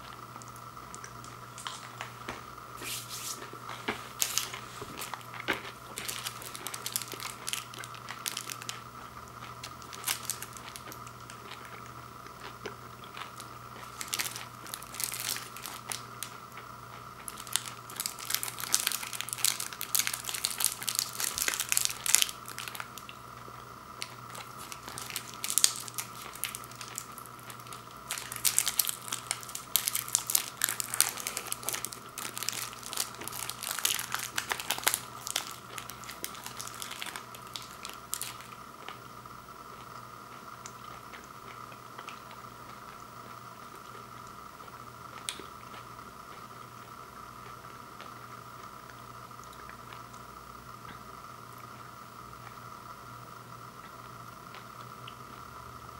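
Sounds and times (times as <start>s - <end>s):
plastic wrapper crinkling: 2.8s - 8.9s, 9.6s - 11.4s, 13.2s - 16.3s, 17.2s - 23.1s, 24.0s - 38.6s.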